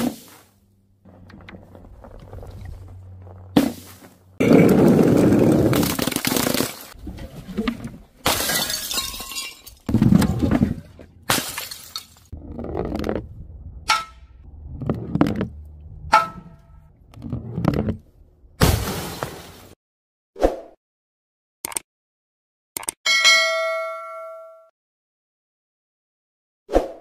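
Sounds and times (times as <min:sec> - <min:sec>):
objects being smashed: 0:03.6 - 0:07.0, 0:08.2 - 0:12.4
glass shattering: 0:08.2 - 0:10.0, 0:11.3 - 0:12.3.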